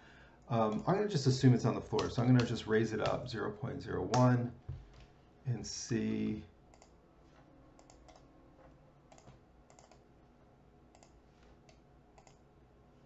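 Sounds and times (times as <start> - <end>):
keyboard and mouse clicks: 1.9 - 3.2, 7.8 - 8.3, 9.1 - 10.0, 10.9 - 12.4.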